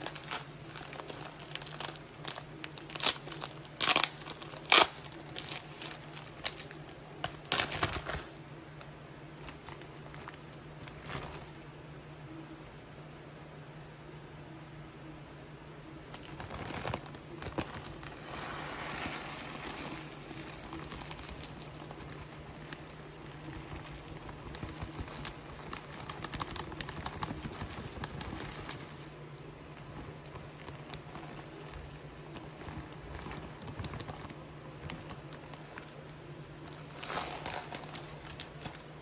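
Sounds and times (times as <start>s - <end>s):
plastic bag crinkling: 0.0s - 8.4s, 9.4s - 11.6s, 16.0s - 39.0s
granules pattering on steel pot: 17.8s - 36.0s.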